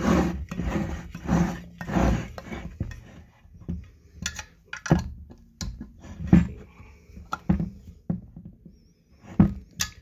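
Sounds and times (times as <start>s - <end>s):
tools clinking and scraping on metal: 4.1s - 5.0s, 9.4s - 10.0s.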